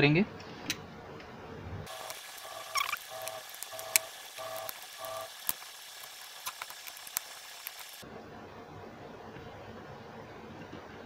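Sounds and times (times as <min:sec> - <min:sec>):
steady hiss: 0:01.9 - 0:08.0
screwdriver squeaking: 0:02.6 - 0:04.7.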